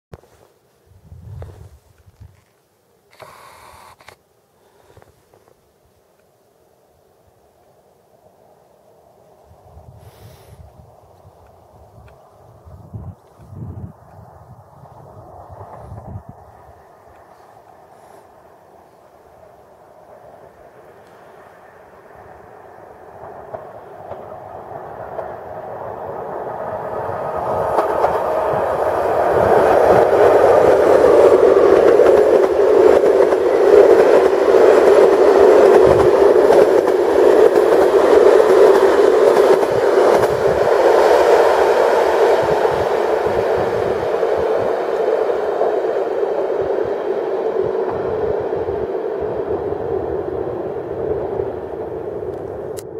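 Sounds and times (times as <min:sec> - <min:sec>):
train wheels rolling on rails: 0:07.6 - 0:52.9
wheels clacking: 0:27.1 - 0:46.6.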